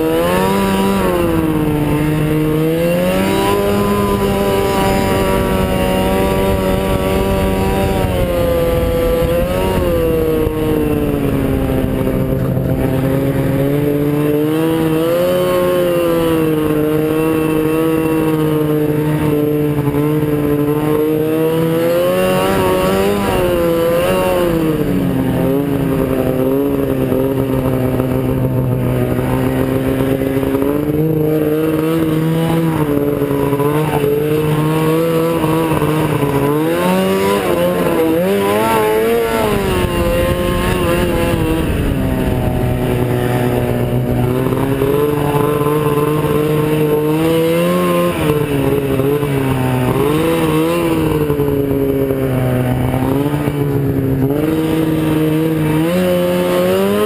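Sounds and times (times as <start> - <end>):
snowmobile engine revving: 0.0 - 57.0.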